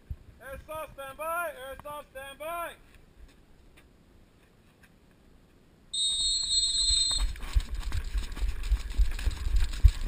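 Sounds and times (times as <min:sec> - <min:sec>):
loud high-pitched tone: 0:06.0 - 0:07.3
running footsteps on dirt: 0:06.4 - 0:10.0.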